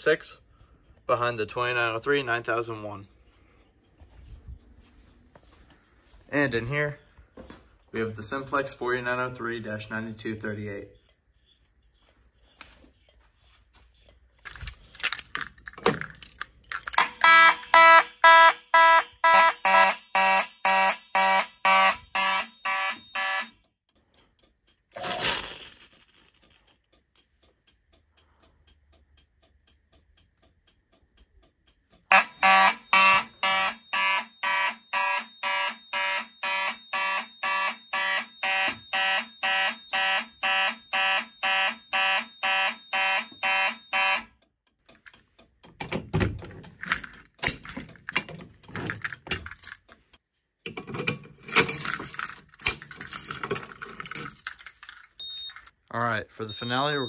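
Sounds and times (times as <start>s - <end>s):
keys rattling: 14.4s - 17.1s, 46.3s - 50.0s, 51.3s - 55.7s
fire alarm horns pulsing: 17.0s - 23.7s, 32.1s - 44.4s.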